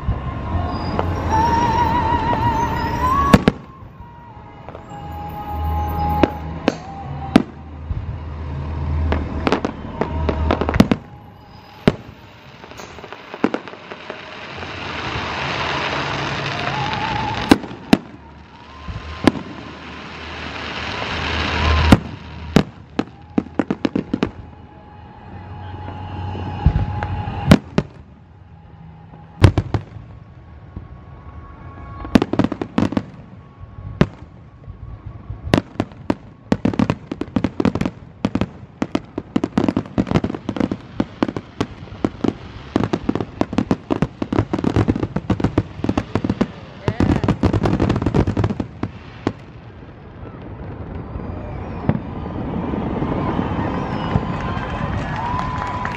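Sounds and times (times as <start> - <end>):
firework hiss: 8.9 - 23.0
firework shells bursting: 10.3 - 14.2.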